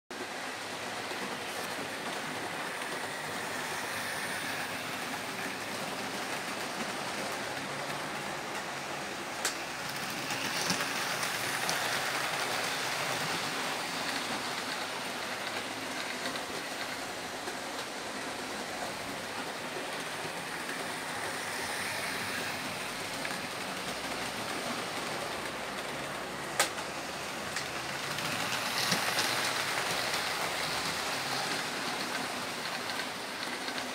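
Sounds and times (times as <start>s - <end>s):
model trains rolling: 0.2s - 33.9s.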